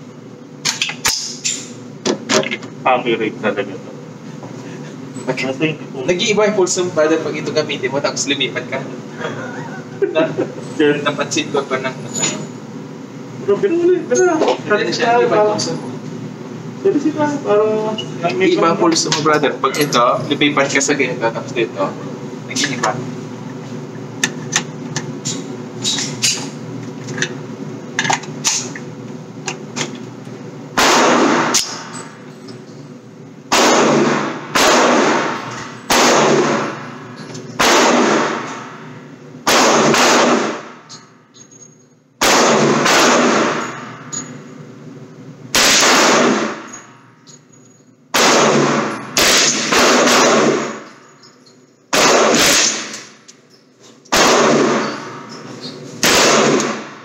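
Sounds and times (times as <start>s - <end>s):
steady low hum: 0.0s - 57.0s
gunshots with ringing tail: 30.8s - 32.0s, 33.5s - 37.0s, 37.6s - 40.8s, 42.2s - 44.1s, 45.5s - 46.8s, 48.1s - 50.8s, 51.9s - 52.9s, 54.1s - 55.4s, 56.0s - 57.0s.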